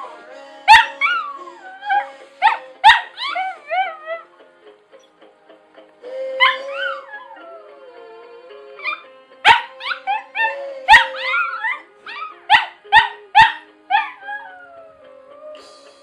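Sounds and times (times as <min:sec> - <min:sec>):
dog howling: 0:00.7 - 0:04.3, 0:06.3 - 0:08.2, 0:08.8 - 0:15.6.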